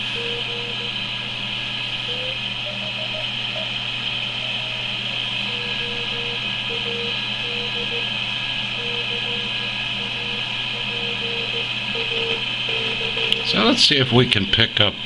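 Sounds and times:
radio hiss and hum: 0.0s - 15.0s
morse code beat tone: 5.5s - 8.1s, 8.7s - 13.7s.

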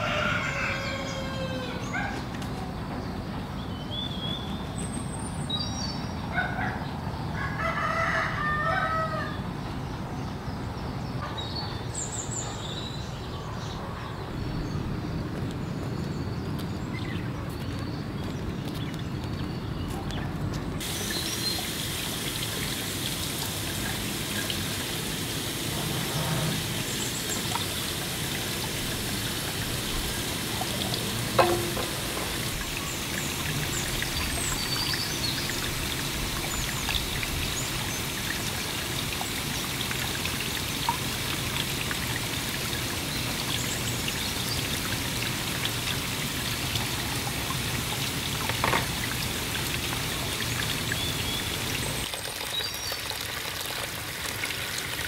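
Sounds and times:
water splashing into plastic trough: 27.2s - 37.6s
short knocks: 31.2s - 32.9s.

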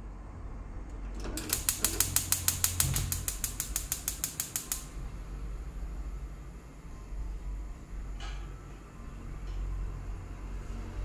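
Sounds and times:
rapid even clicking: 1.2s - 4.9s.

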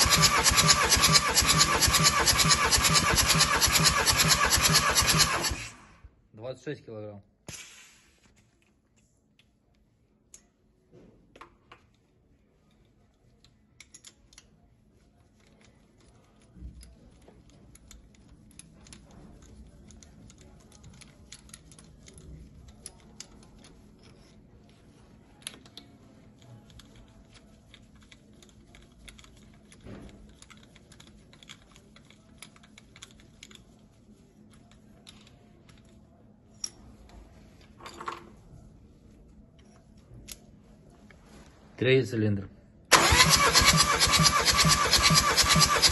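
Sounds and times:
metal tools clicking and clinking: 13.8s - 14.5s, 15.4s - 24.4s.

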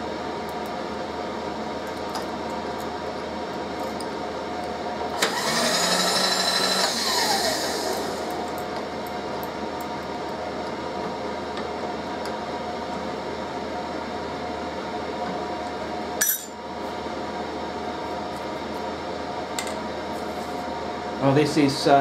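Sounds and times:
heater whirring hum: 0.0s - 22.0s
metallic clink: 16.2s - 16.6s.

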